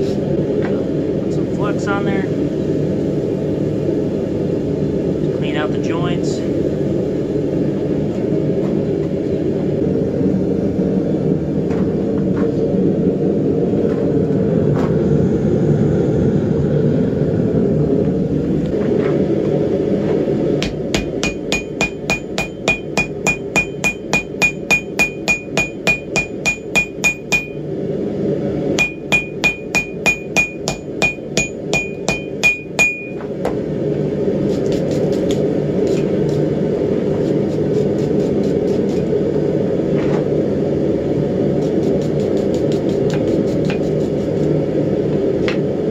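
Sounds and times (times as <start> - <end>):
hammer striking steel on anvil: 20.6 - 27.6, 28.8 - 33.2.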